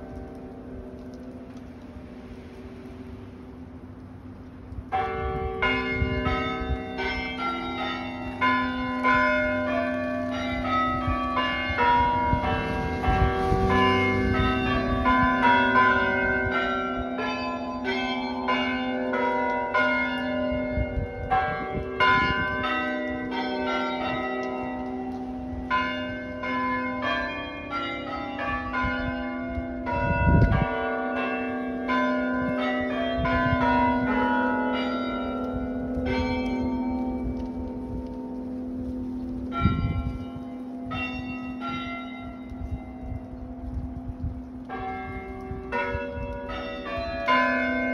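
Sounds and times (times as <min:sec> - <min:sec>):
tower bells playing a tune: 0:04.9 - 0:38.6, 0:39.5 - 0:43.6, 0:44.7 - 0:47.9.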